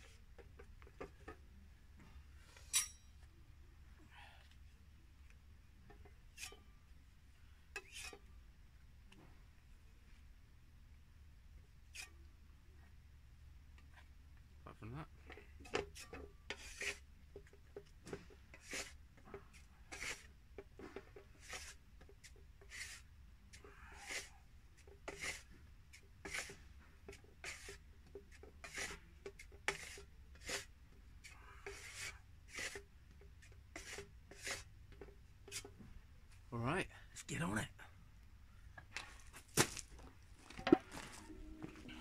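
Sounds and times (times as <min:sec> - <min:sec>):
knife scraping filler on board: 0:15.7 - 0:17.0, 0:18.5 - 0:19.0, 0:24.0 - 0:24.3, 0:25.0 - 0:25.4, 0:26.2 - 0:26.6, 0:27.4 - 0:27.8, 0:28.6 - 0:30.7, 0:31.6 - 0:32.8, 0:33.7 - 0:34.6.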